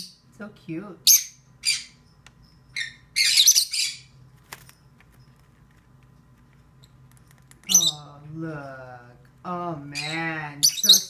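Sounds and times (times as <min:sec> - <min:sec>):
shrill bird calls: 0:02.8 - 0:04.2.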